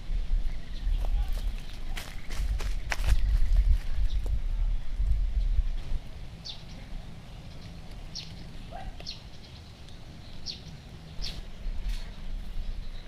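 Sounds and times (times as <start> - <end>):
steady low rumble: 0.0 - 13.0
bird chirping: 5.3 - 13.0.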